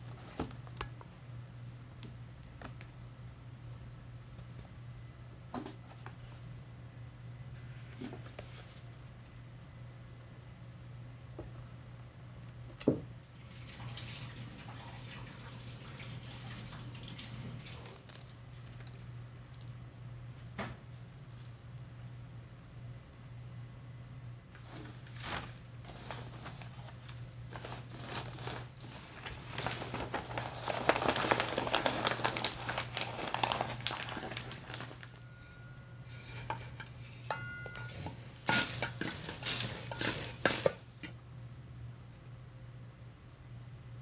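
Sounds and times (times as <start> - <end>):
soil rustling and scraping: 36.1 - 40.8.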